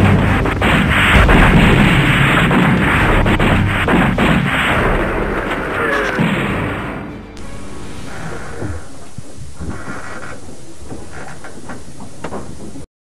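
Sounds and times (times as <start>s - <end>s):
gunfire: 0.0s - 7.0s
explosions: 0.0s - 9.8s.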